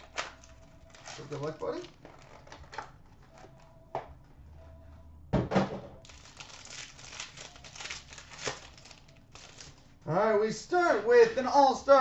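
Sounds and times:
foil wrapper crinkling: 0.0s - 2.8s, 6.0s - 9.8s.

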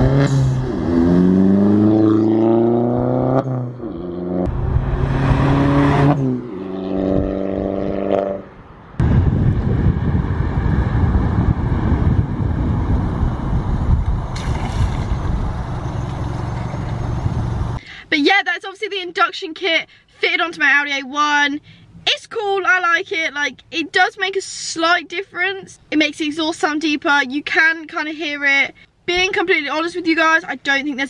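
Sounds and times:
car engine accelerating past: 0.0s - 8.5s
wind noise rushing: 4.5s - 8.2s, 9.0s - 17.8s.

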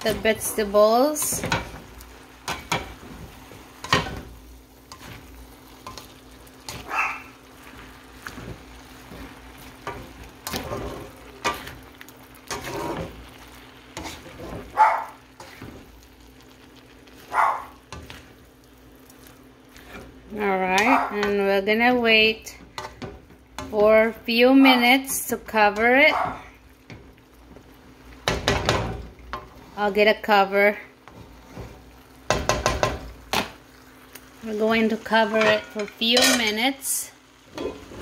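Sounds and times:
frying sizzle: 0.0s - 38.0s
plastic spatula scraping pan: 7.6s - 11.8s, 12.4s - 13.4s, 14.0s - 14.8s.

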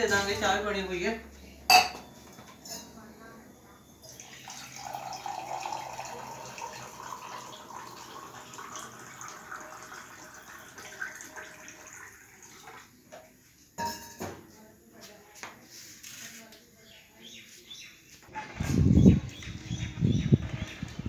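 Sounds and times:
tap water running into steel pot: 4.1s - 12.9s.

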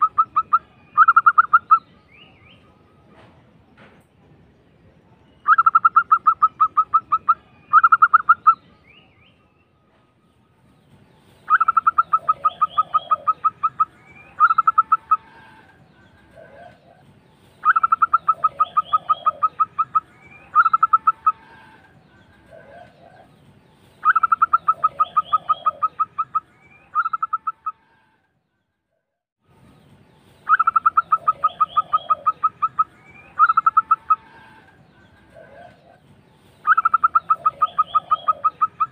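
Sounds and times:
dove cooing: 11.5s - 15.7s, 17.6s - 23.3s, 24.0s - 27.7s, 30.5s - 34.7s, 36.6s - 38.9s.

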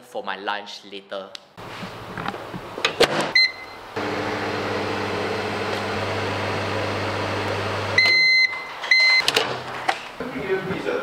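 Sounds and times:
microwave beeps: 3.3s - 4.9s, 5.9s - 9.3s
microwave humming: 3.3s - 8.6s.

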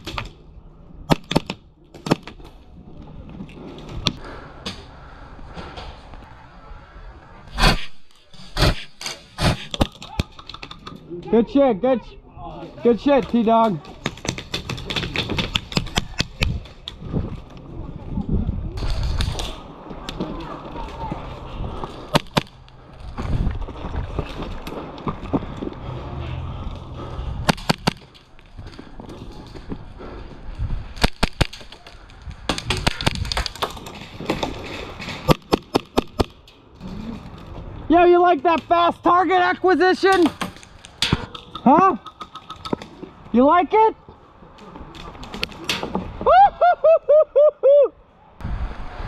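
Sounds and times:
wind buffeting microphone: 14.4s - 31.0s, 48.4s - 49.0s.

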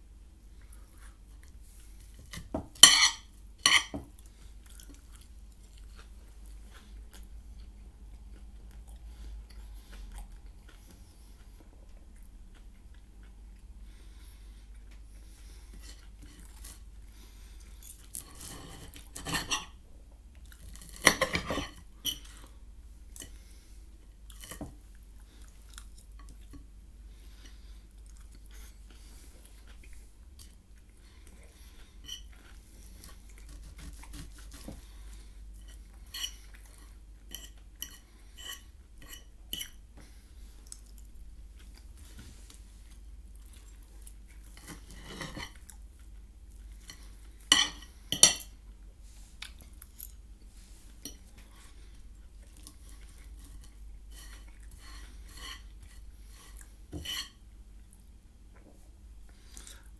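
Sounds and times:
cutlery scraping on a plate: 2.3s - 4.1s, 18.3s - 19.8s, 20.8s - 22.3s, 32.0s - 32.4s, 35.6s - 36.5s, 37.3s - 39.8s, 44.5s - 45.6s, 46.9s - 48.5s, 53.4s - 57.4s
chewing: 4.1s - 13.7s, 21.7s - 48.0s, 49.3s - 58.1s.

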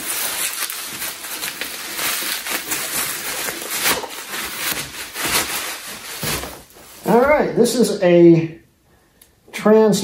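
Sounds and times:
bubble wrap rustling and crinkling: 0.0s - 7.8s.

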